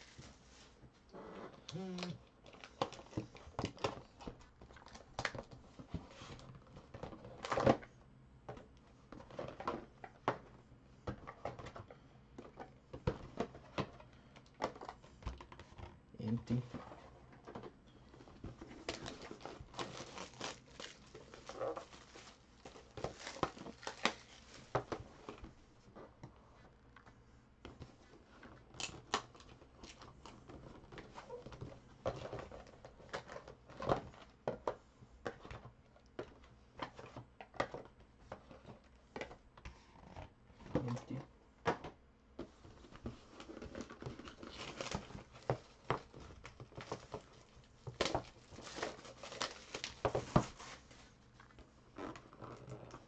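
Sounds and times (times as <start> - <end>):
cardboard rustling and scraping: 16.5 - 26.7, 42.4 - 51.3.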